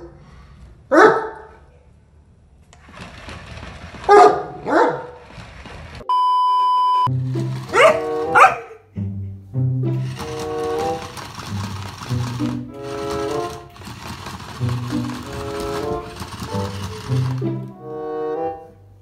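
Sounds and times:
dog barking: 0.9 - 1.7, 4.1 - 5.2, 7.7 - 8.8
electronic beep: 6.1 - 7.1
music: 7.1 - 19.0.

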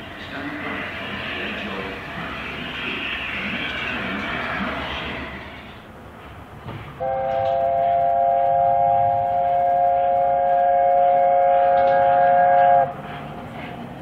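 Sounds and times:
steam locomotive chime whistle: 7.0 - 12.9.

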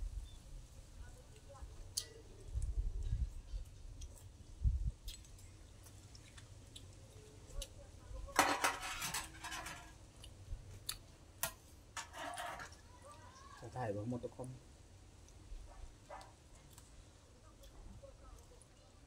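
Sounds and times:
spoons clinking on metal bowl: 8.4 - 9.9.

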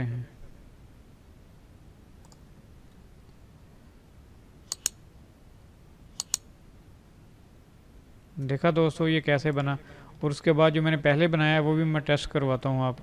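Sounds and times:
faint steady hiss: 0.0 - 13.0
mouse clicks: 2.2 - 2.4, 4.7 - 5.0, 6.2 - 6.5.

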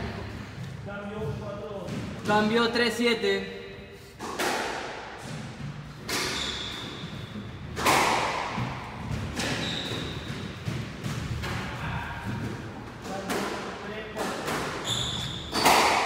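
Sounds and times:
squash ball hits echoing: 4.2 - 16.0
high squeaks: 6.1 - 7.4, 9.4 - 10.4, 14.8 - 15.8.

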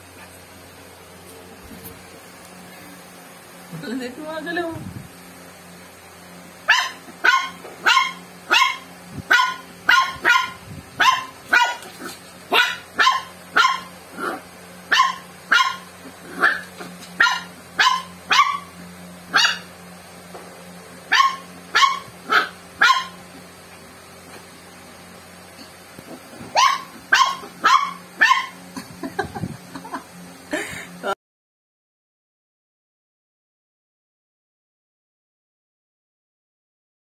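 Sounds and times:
puppy barking: 6.7 - 18.7, 19.3 - 19.7, 21.1 - 23.2, 26.4 - 28.6.

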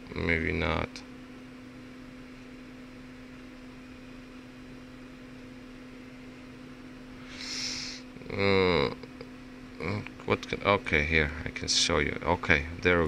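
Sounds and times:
low electrical hum: 0.0 - 13.0
faint hiss: 7.2 - 8.0.

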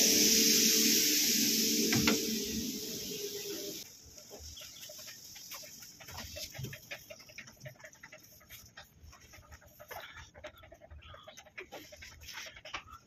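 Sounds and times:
mechanical hum with hiss: 0.0 - 6.8.

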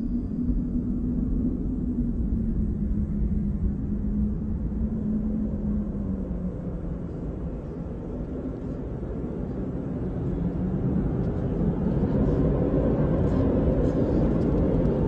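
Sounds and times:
low mechanical rumble: 0.0 - 15.0.

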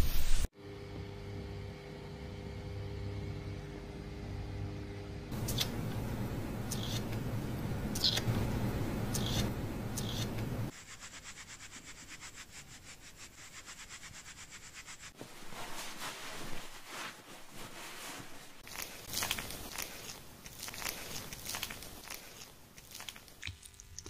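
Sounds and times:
hands rubbing skin: 5.3 - 23.3
plastic comb scraping skin: 6.6 - 7.2, 8.0 - 8.4, 9.0 - 10.5
shampoo lather squishing in hair: 13.5 - 24.0.

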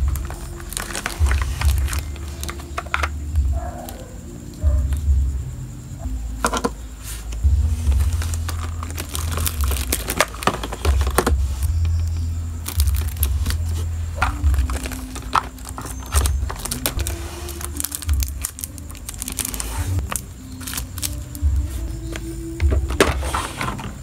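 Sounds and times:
plastic packaging crinkling: 0.0 - 3.1, 7.8 - 23.9
small plastic items clicking: 0.0 - 3.2, 7.9 - 21.5
soft background music: 0.0 - 24.0.

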